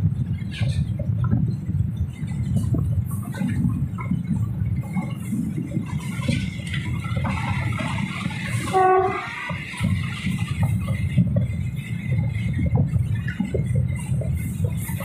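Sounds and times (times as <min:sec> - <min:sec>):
train rumbling: 0:00.0 - 0:15.0
wheels clicking over rails: 0:00.0 - 0:15.0
train horn blast: 0:08.4 - 0:09.6.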